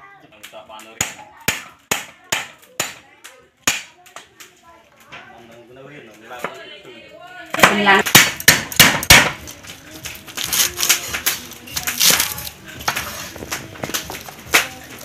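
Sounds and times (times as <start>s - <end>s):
knife crunching through stalks: 9.1s - 15.0s.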